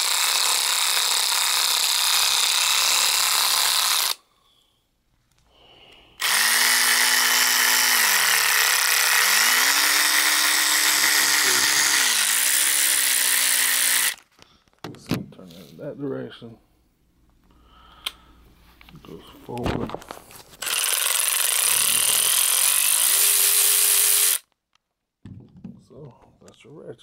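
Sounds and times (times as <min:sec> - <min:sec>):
cordless ratchet whirring: 0:00.0 - 0:04.2, 0:06.2 - 0:14.3, 0:20.6 - 0:24.5.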